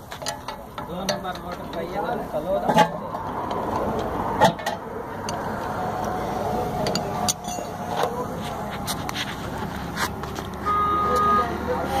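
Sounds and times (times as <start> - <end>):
metallic clicks and knocks: 0.0 - 6.2, 6.8 - 8.2
steady background noise: 0.0 - 12.0.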